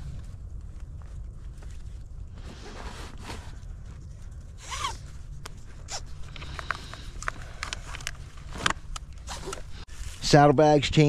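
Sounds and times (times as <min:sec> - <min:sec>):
zipper being pulled open: 0:04.6 - 0:05.1, 0:07.9 - 0:09.8.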